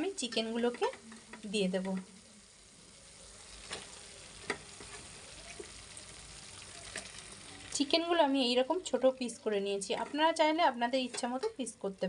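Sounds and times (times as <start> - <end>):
paste sizzling in hot oil: 0.0 - 9.5.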